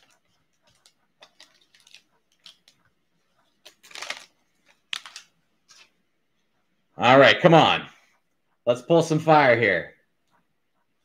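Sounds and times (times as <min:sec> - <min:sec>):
plastic wrapper crinkling: 0:00.0 - 0:05.9.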